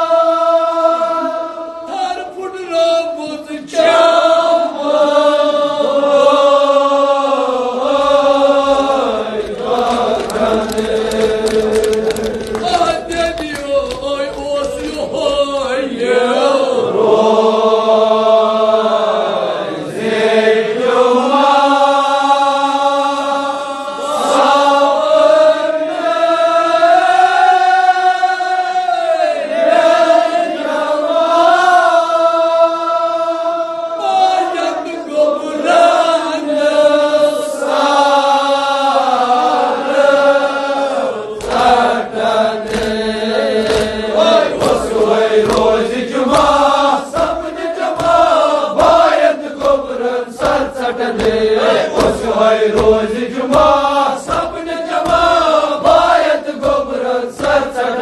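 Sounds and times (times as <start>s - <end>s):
men chanting a lament: 0.0s - 58.0s
sharp knocks: 42.6s - 58.0s.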